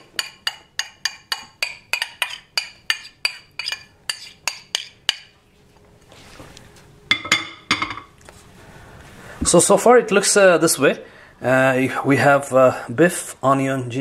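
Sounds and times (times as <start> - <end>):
metal utensil tapping a pot: 0.0 - 5.3.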